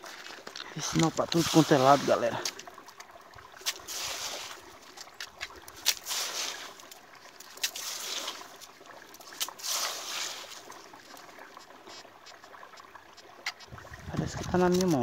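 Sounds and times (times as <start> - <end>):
hand scraping through gravel: 0.8 - 2.4, 3.6 - 4.6, 5.8 - 8.7, 9.3 - 10.7.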